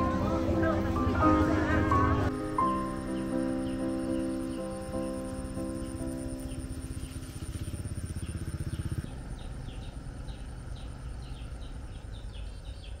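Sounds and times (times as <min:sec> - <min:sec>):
birds chirping: 0:00.0 - 0:13.0
motorbike engine puttering: 0:05.4 - 0:13.0.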